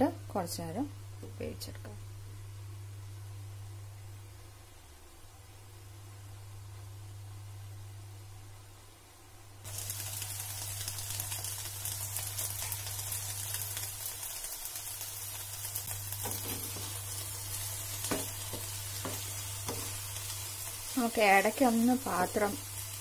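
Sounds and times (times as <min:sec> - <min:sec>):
vegetables sizzling in a pan: 0:09.6 - 0:23.0
spatula scraping a pan: 0:16.2 - 0:17.0.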